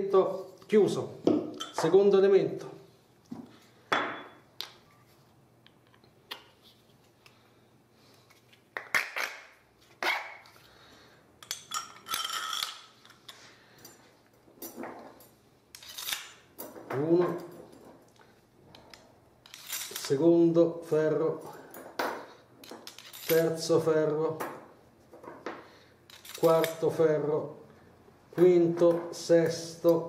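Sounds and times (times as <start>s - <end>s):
metal rods clinking and clattering: 1.6s - 2.0s, 11.4s - 18.0s, 18.7s - 20.2s, 21.4s - 23.6s, 26.1s - 26.8s.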